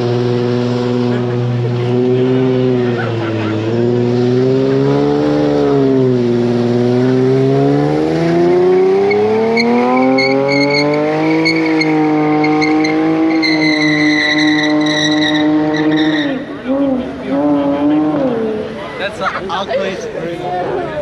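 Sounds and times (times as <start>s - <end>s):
car engine at high revs: 0.0s - 19.9s
tyres squealing: 9.0s - 18.5s.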